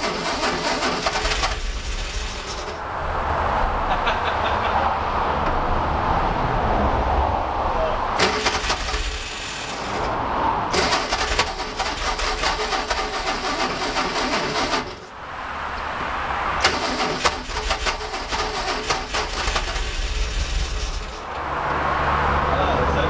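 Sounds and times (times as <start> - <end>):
starter motor cranking engine: 0.0 - 2.8, 8.2 - 10.1, 10.7 - 15.1, 16.6 - 21.2.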